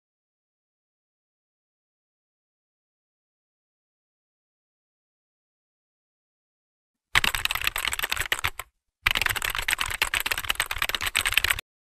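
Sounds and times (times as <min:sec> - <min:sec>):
rapid keyboard typing: 0:07.2 - 0:11.6.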